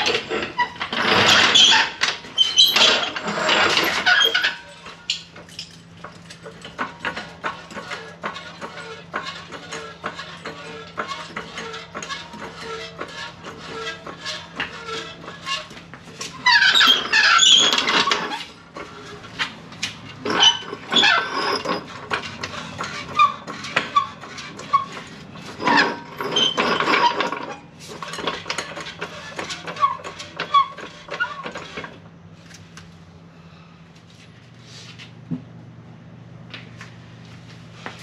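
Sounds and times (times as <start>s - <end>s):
short squeaks: 0.0s - 5.7s, 7.7s - 31.9s
metal clattering: 0.0s - 31.9s
floor jack pumping: 0.0s - 32.1s
floor jack wheeled on concrete: 0.0s - 35.5s, 36.5s - 38.0s.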